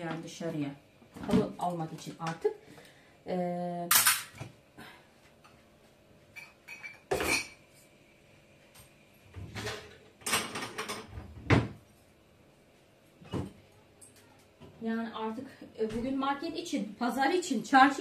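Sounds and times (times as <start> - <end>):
dishes and pans clattering: 6.3 - 7.6, 9.5 - 11.8.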